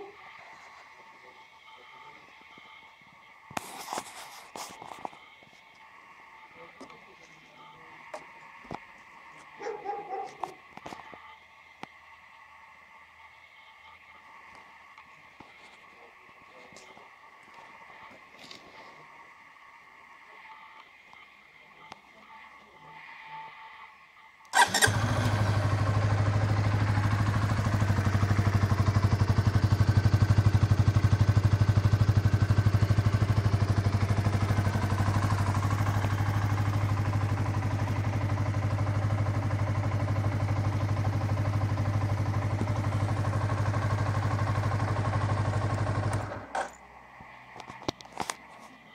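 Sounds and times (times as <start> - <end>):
motorcycle engine idling: 24.6 - 46.8.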